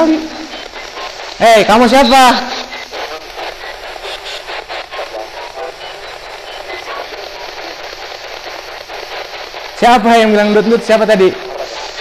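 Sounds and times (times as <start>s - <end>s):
radio static hiss: 0.0s - 12.0s
rapid clicks: 0.0s - 12.0s.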